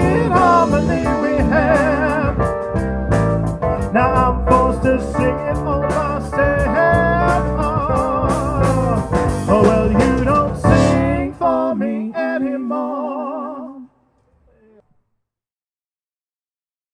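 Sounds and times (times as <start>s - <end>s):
drums and cymbals: 0.0s - 11.3s
live band playing: 0.0s - 11.6s
held notes with vibrato: 9.1s - 11.7s.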